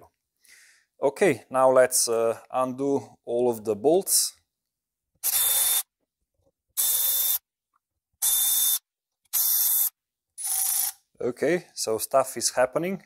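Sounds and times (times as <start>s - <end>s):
cordless ratchet bursts: 5.2s - 5.9s, 6.8s - 7.4s, 8.2s - 11.0s.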